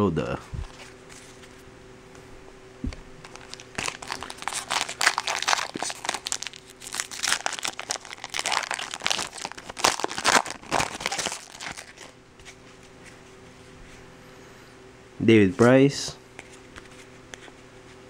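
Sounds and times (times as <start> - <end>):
faint steady hum: 0.0 - 18.0
foil wrapper crinkling and tearing: 3.2 - 12.2.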